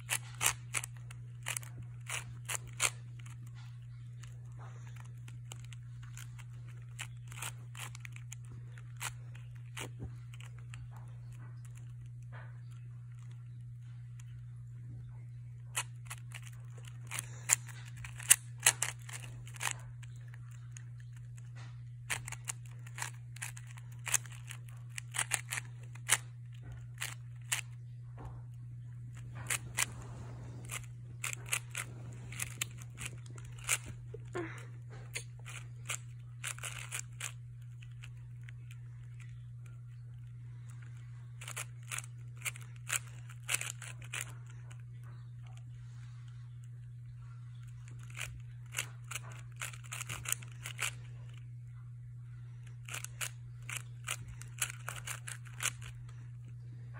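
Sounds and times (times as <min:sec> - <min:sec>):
puzzle cube clicking: 0:00.0 - 0:03.6, 0:04.2 - 0:12.0, 0:15.7 - 0:21.4, 0:22.0 - 0:27.7, 0:29.1 - 0:34.3, 0:35.1 - 0:39.3, 0:40.8 - 0:44.8, 0:47.9 - 0:51.0, 0:52.8 - 0:56.1
low hum: 0:00.0 - 0:56.9.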